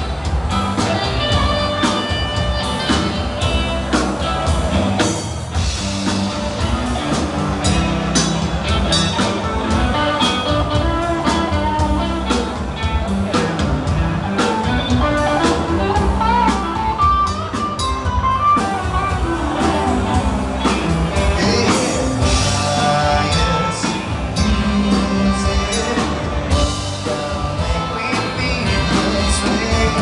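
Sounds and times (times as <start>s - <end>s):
electric guitar: 0.0s - 30.0s
steady drum beat: 0.0s - 30.0s.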